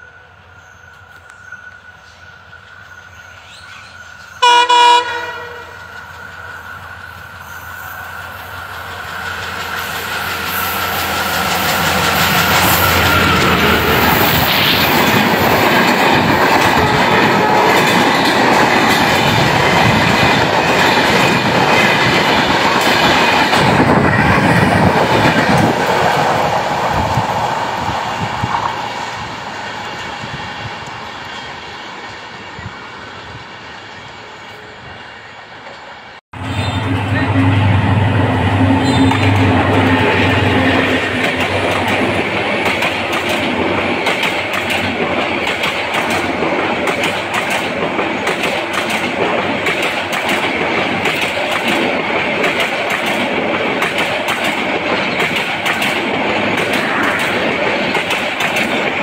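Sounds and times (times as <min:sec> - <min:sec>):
train horn blast: 0:04.4 - 0:05.9, 0:36.4 - 0:41.7
train wheels clattering on rails: 0:04.4 - 0:33.4, 0:38.2 - 0:59.0.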